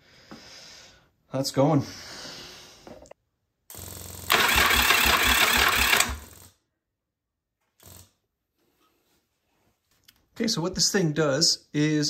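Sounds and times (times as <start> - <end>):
electric starter motor cranking: 3.7 - 6.6.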